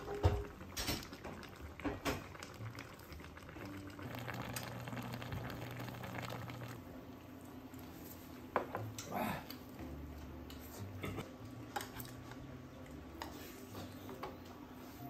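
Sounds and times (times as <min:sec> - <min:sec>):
stew bubbling in a pot: 0:00.0 - 0:07.9.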